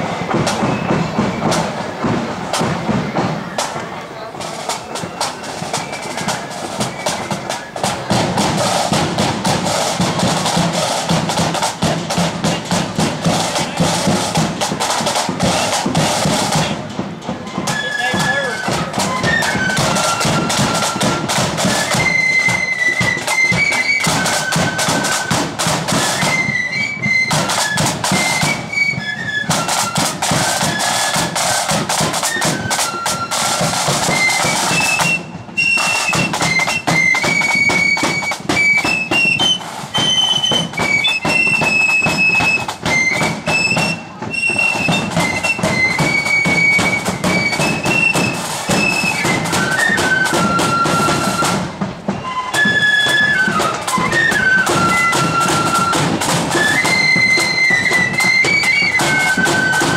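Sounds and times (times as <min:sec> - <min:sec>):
fast snare drumming: 0:00.0 - 0:59.9
flutes playing a tune: 0:00.0 - 0:59.9.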